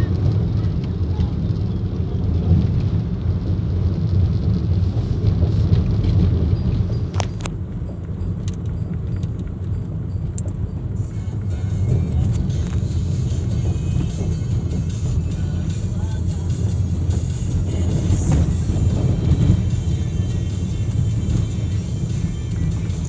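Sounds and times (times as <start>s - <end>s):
car engine and tyre rumble: 0.0s - 23.0s.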